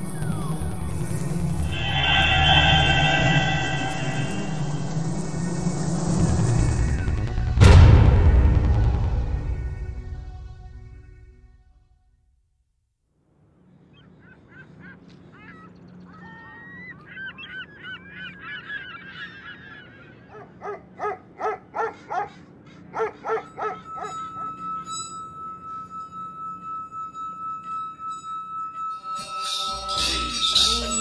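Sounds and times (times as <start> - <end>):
steady high tone: 0.0 - 11.6, 23.4 - 31.0
waterfowl honking: 0.8 - 5.1.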